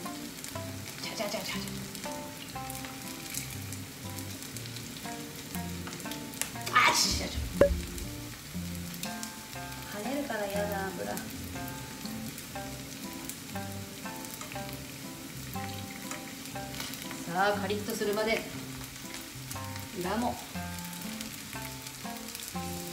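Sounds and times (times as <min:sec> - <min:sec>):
vegetable slices sizzling in oil: 0:00.0 - 0:22.9.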